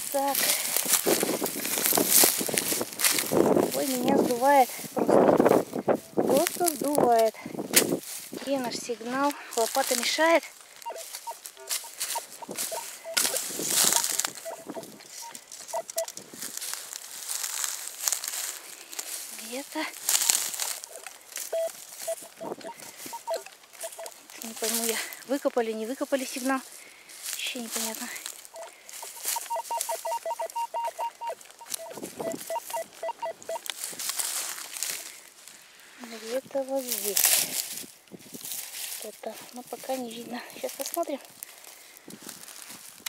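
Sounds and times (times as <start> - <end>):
dry grass crunching and rustling: 0.0 - 43.0
metal detector beeps: 10.8 - 16.1, 20.1 - 24.2, 28.5 - 33.7.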